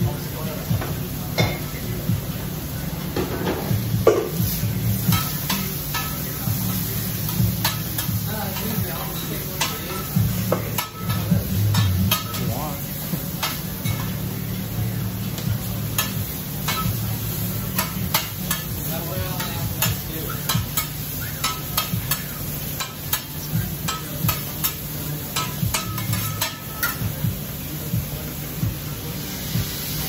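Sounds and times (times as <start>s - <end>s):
steak sizzling on griddle: 0.0s - 30.0s
spatula and fork clacking on griddle: 5.0s - 12.5s, 13.3s - 14.2s, 16.0s - 27.2s.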